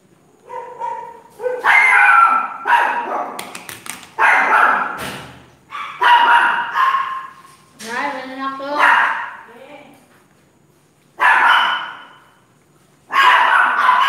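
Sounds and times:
dog barking and yipping: 0:00.4 - 0:03.4, 0:04.2 - 0:05.0, 0:05.7 - 0:07.5, 0:08.7 - 0:09.5, 0:11.2 - 0:12.3, 0:13.1 - 0:14.0.

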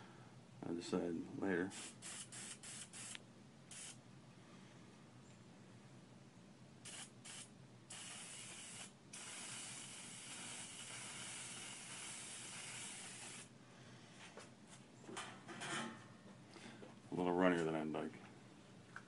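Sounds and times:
paint sprayer hissing: 0:01.7 - 0:04.0, 0:06.8 - 0:13.5.

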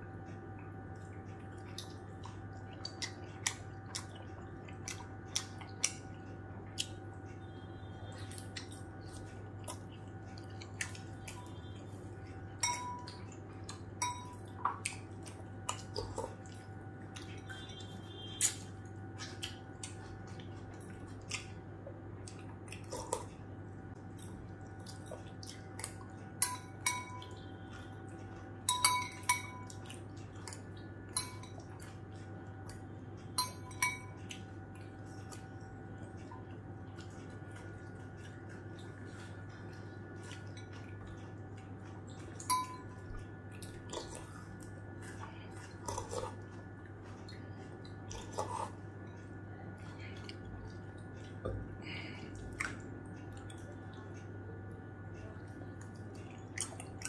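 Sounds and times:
spoon clinking against glass bowl: 0:12.6 - 0:13.2, 0:14.0 - 0:14.4, 0:26.4 - 0:27.4, 0:28.7 - 0:29.7, 0:31.1 - 0:31.7, 0:33.4 - 0:34.2, 0:42.4 - 0:43.1.

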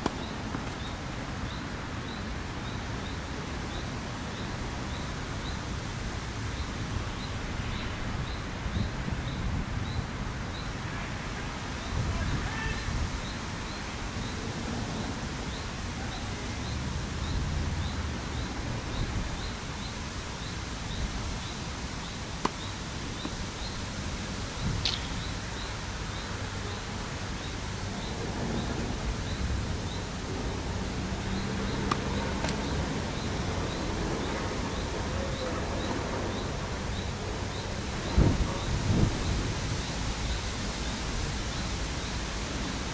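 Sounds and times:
wind noise on microphone: 0:00.0 - 0:42.9
tennis racket hitting ball: 0:22.4 - 0:22.6, 0:31.8 - 0:32.7.

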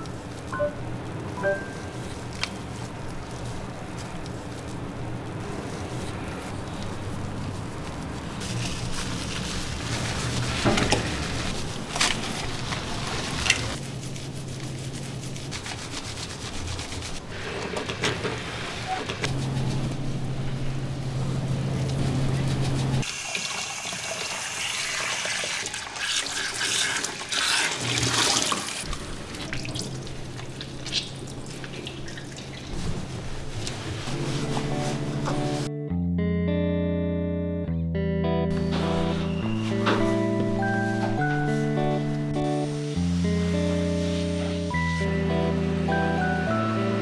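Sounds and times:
running water splashing in a tub: 0:23.0 - 0:34.0.

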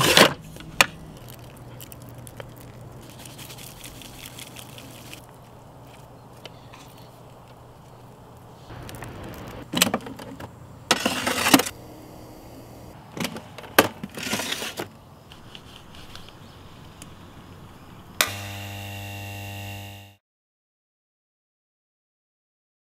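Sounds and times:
low buzzing note: 0:18.2 - 0:20.2.

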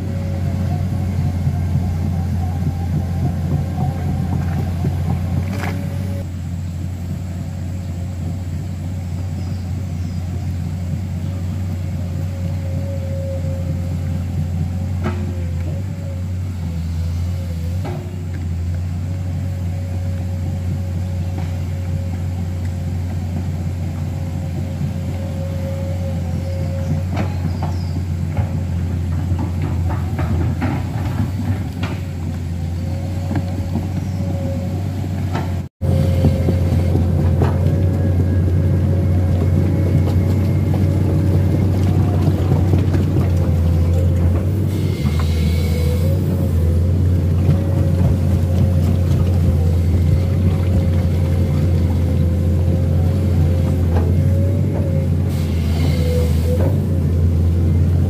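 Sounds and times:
excavator diesel engine running: 0:00.0 - 0:58.0.

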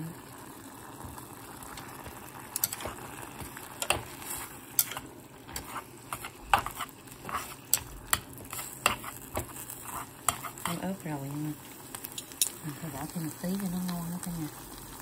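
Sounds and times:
chopsticks scraping a pot: 0:02.6 - 0:11.0.

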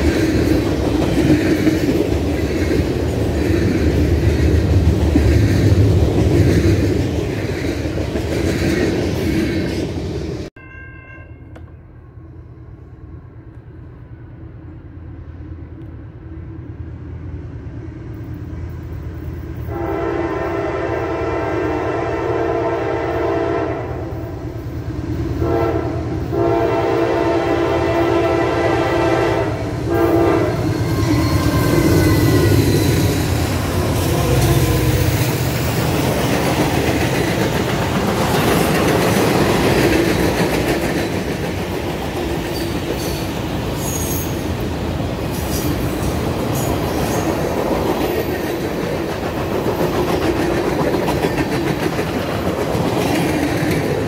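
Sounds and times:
train rolling on rails: 0:00.0 - 0:54.0
train horn blowing: 0:19.7 - 0:24.3, 0:25.4 - 0:32.9, 0:33.7 - 0:35.2.

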